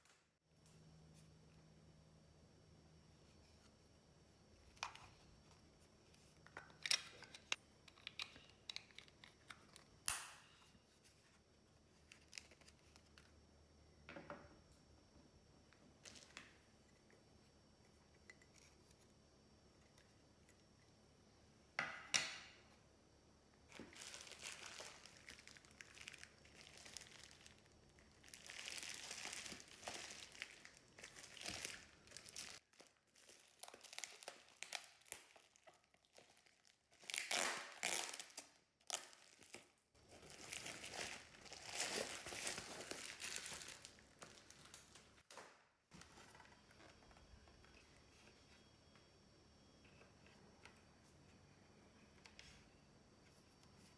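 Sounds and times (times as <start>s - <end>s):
plastic packaging crinkling: 23.7s - 45.3s.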